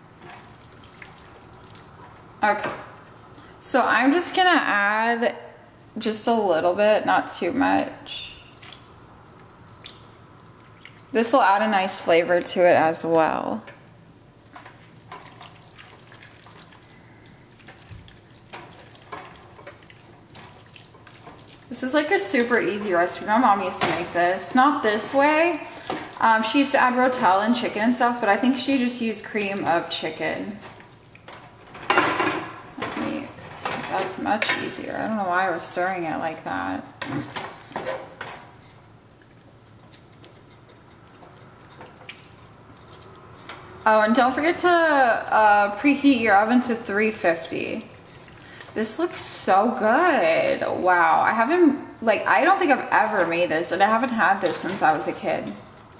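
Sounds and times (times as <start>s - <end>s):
tongs scraping a pan: 39.9s - 42.1s.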